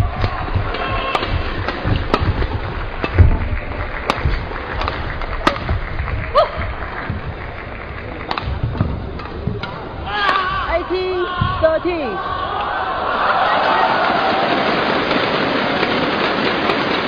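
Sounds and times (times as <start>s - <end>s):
rackets hitting shuttlecock: 0.0s - 11.8s.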